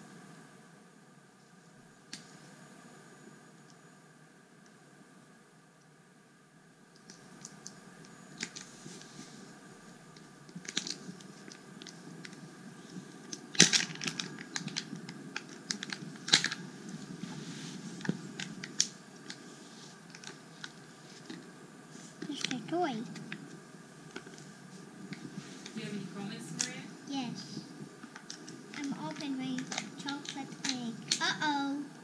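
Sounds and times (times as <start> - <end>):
plastic egg and wrapping crackling: 10.5 - 12.4, 13.2 - 17.4, 20.1 - 21.4, 28.0 - 31.4.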